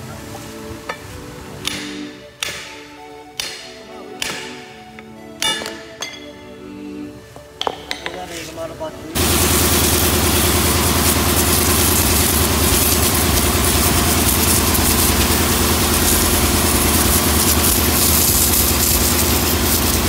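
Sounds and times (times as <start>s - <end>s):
pressure washer pump humming: 9.1s - 20.0s
water jet hissing on metal: 9.2s - 20.0s.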